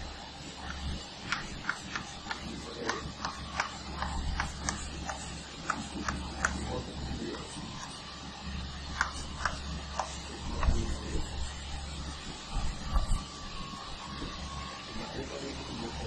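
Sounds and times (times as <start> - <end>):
steady low hum: 0.0 - 16.0
chalk tapping and scratching on blackboard: 0.6 - 6.8, 7.4 - 8.0, 8.9 - 11.6, 12.6 - 13.2.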